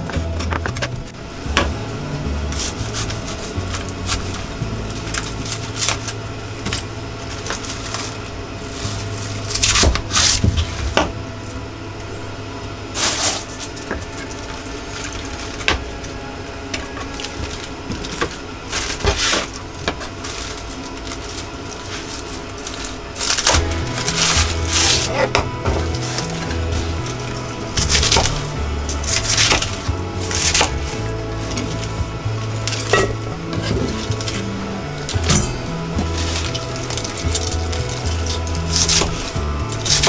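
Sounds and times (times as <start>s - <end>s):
steady low hum: 0.0s - 40.0s
utensils clattering: 0.0s - 40.0s.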